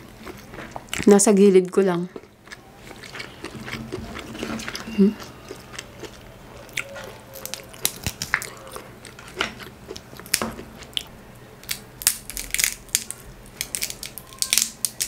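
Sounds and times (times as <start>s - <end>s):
crab shell cracking by hand: 6.8s - 8.6s, 11.6s - 15.0s.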